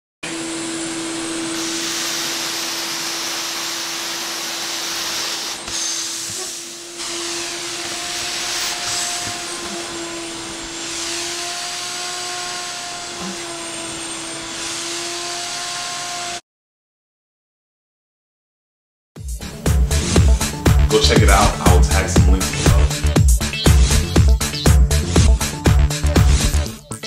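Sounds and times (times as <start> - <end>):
shop vacuum sucking water: 0.2 - 16.4, 19.4 - 24.3.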